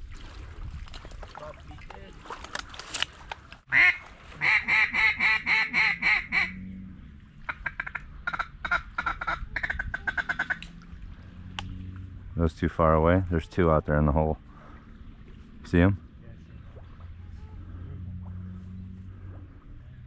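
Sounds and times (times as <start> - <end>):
duck call quacks: 3.7 - 6.6, 7.5 - 10.6.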